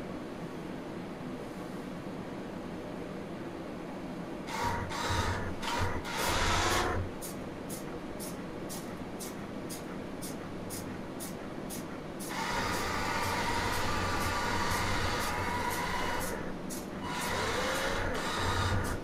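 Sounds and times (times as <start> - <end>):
small motors whirring: 4.5 - 7.1, 12.2 - 19.0.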